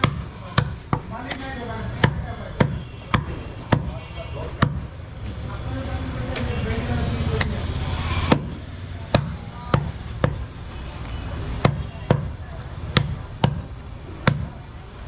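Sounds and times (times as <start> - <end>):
cleaver chopping meat on wood: 0.0 - 5.0, 8.2 - 10.5, 11.5 - 14.6.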